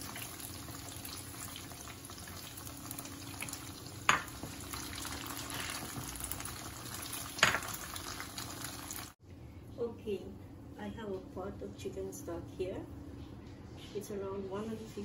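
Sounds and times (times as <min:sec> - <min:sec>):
food sizzling in hot oil: 0:00.0 - 0:09.2.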